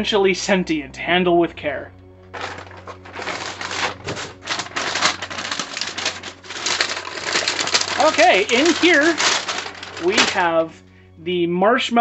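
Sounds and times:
tissue paper crinkling: 2.3s - 10.7s.

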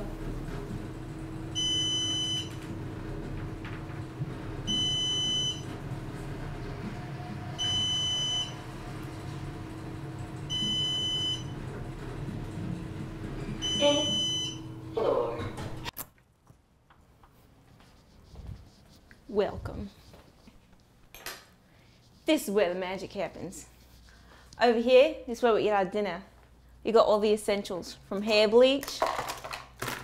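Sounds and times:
elevator car humming: 0.0s - 15.9s
elevator chime beep: 1.6s - 2.6s, 4.7s - 5.7s, 7.6s - 8.7s, 10.5s - 11.6s, 13.6s - 14.8s.

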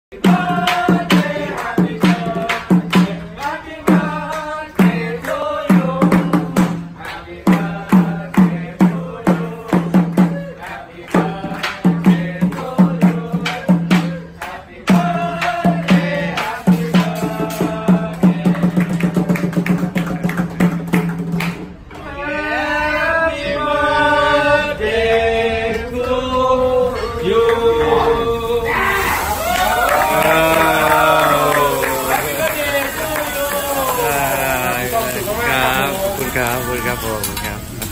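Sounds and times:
group clapping: 0.1s - 6.0s, 6.9s - 9.1s, 9.7s - 17.2s, 18.0s - 21.8s, 29.2s - 37.9s
group chanting: 0.1s - 18.8s, 22.0s - 37.2s
group singing a birthday song: 0.1s - 20.0s, 21.7s - 37.9s
fast percussive beat: 0.1s - 21.7s.

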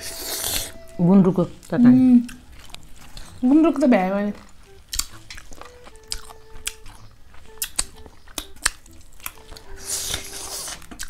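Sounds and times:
chewing crunches: 2.2s - 3.4s, 4.3s - 11.0s.

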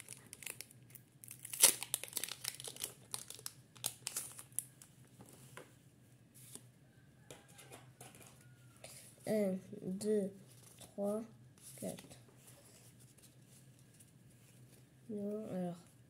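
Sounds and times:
foil wrapper tearing and crinkling: 0.0s - 4.8s.

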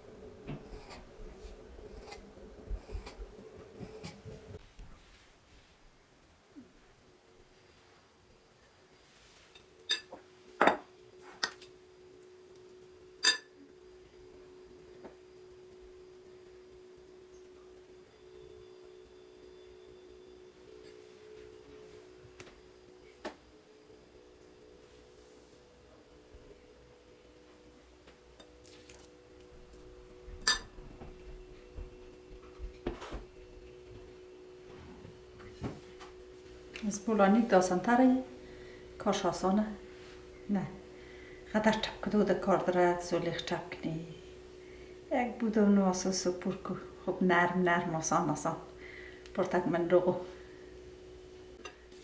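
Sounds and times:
faint steady hum: 0.0s - 52.0s
metal spoon clinking glass bowl: 13.2s - 13.5s, 30.4s - 30.7s.

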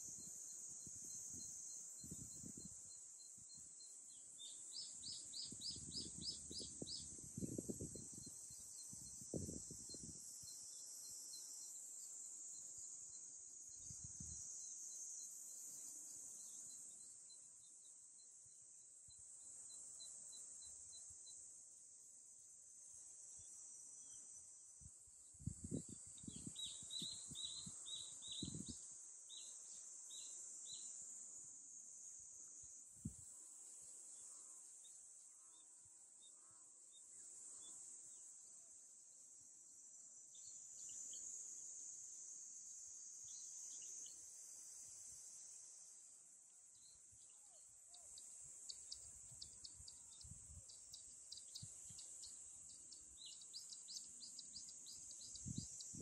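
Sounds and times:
cicadas droning: 0.0s - 56.0s.

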